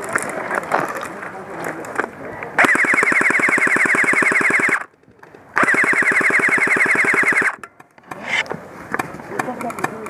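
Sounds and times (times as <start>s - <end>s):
airsoft rifle firing full auto: 2.6s - 4.9s, 5.6s - 7.6s.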